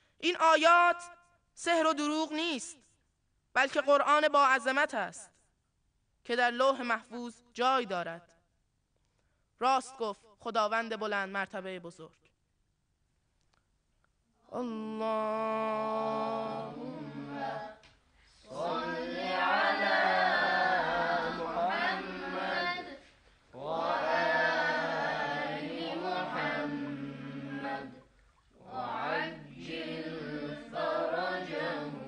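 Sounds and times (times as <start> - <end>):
breaths: 0.0 - 0.2, 9.0 - 9.6, 18.0 - 18.5.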